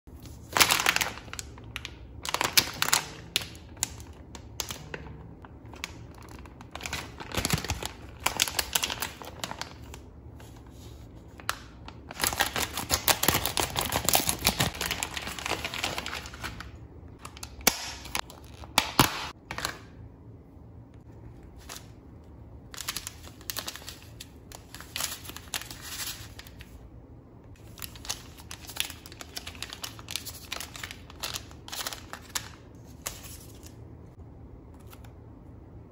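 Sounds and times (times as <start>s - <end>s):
plastic bag crinkling: 0.2s - 10.8s, 11.4s - 18.8s, 22.7s - 26.8s, 27.6s - 33.8s
foil sachets crinkling: 0.2s - 19.7s, 22.7s - 26.8s, 27.6s - 33.8s.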